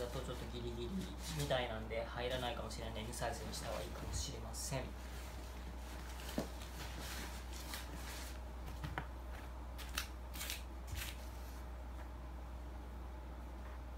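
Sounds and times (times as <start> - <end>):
rain cover rustling: 0.0 - 4.1.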